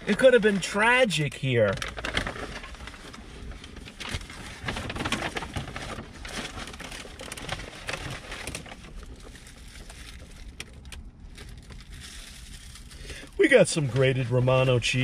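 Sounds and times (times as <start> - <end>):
plastic containers crinkling: 1.4 - 15.0
paper bag rustling: 1.5 - 15.0.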